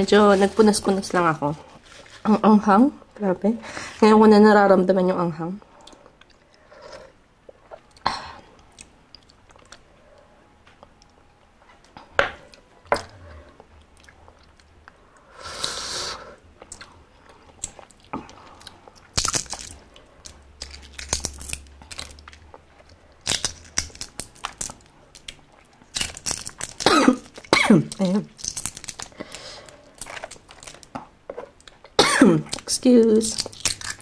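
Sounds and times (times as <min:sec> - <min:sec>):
chewing and crunching: 0:12.5 - 0:15.0, 0:16.5 - 0:34.0
eggshell crackling as peeled: 0:16.6 - 0:34.0.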